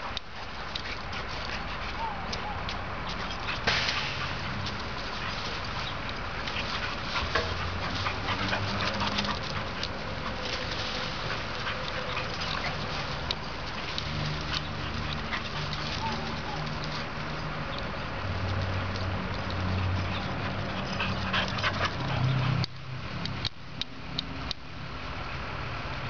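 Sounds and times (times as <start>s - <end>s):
dogs scuffling: 0.3s - 22.6s
dogs growling: 3.2s - 16.9s.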